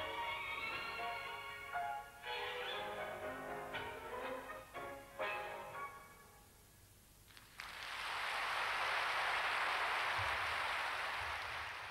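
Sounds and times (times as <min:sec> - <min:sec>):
orchestral ballet music: 0:00.0 - 0:06.5
audience applause: 0:07.4 - 0:11.9.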